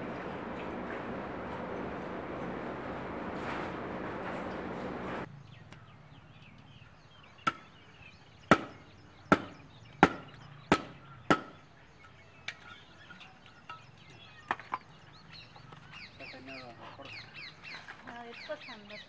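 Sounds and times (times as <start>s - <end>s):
billhook chopping firewood: 7.4s - 7.7s, 8.5s - 11.6s.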